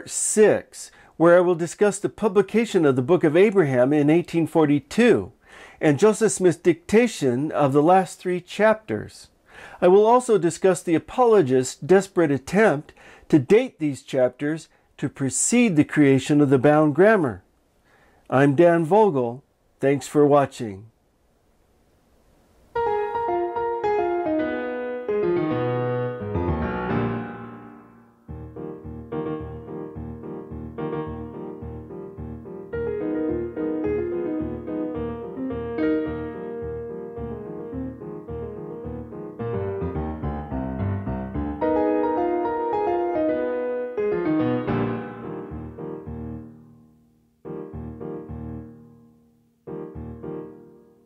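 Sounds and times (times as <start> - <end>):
piano music: 22.8 - 51.0.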